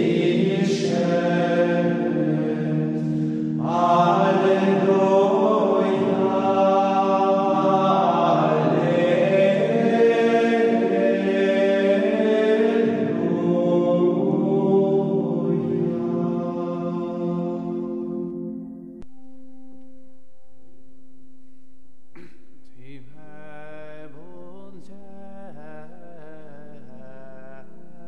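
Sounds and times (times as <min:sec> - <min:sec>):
choir singing plainchant: 0:00.0 - 0:18.6.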